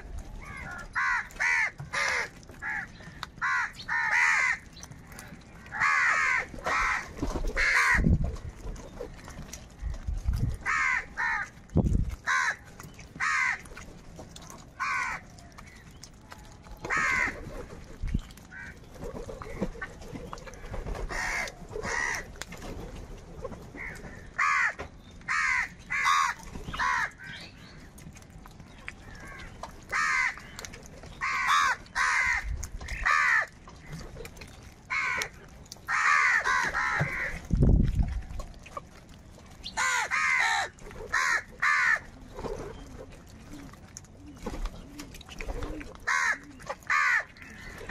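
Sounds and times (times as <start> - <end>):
crows cawing: 0.4 - 4.7, 5.7 - 8.0, 10.6 - 11.5, 12.2 - 12.6, 13.2 - 13.7, 14.8 - 15.2, 16.9 - 17.4, 18.5 - 18.8, 20.6 - 22.3, 23.8 - 27.4, 29.1 - 30.4, 31.2 - 33.6, 34.9 - 35.3, 35.9 - 37.4, 39.8 - 42.1, 46.1 - 47.9.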